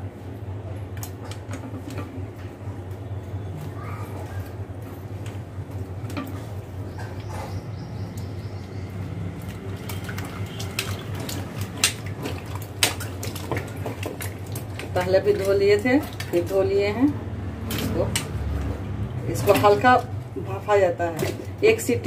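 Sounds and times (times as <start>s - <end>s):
water splashing in steel bowl: 8.0s - 22.0s.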